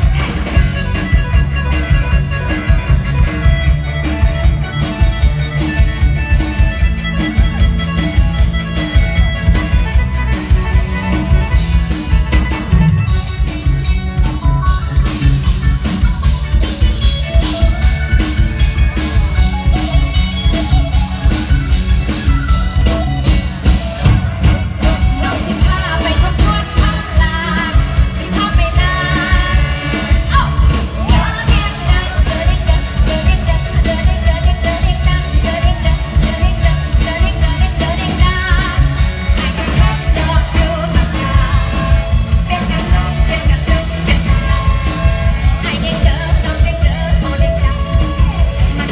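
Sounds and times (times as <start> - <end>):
live band music: 0.0 - 48.9
woman singing into microphone: 24.8 - 48.9.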